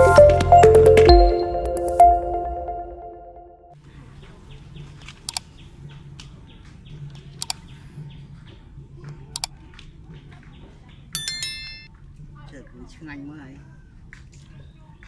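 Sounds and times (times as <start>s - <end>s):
notification bell chime: 0.0s - 3.5s, 11.2s - 11.9s
double mouse clicks: 9.3s - 9.6s.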